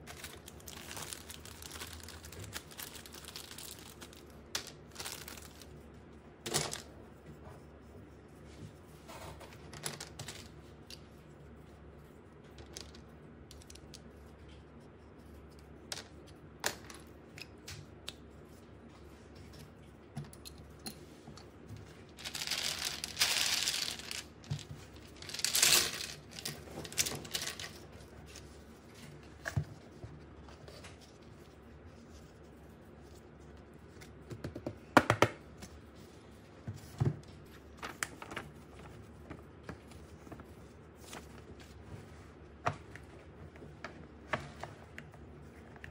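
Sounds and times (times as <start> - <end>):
packaging crinkling: 0.0 - 5.7, 22.1 - 27.8.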